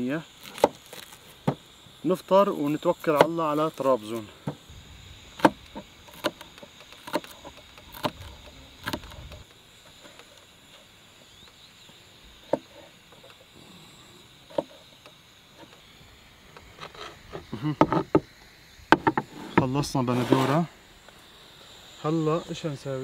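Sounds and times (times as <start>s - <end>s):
high-pitched insect buzz: 0.0s - 23.0s.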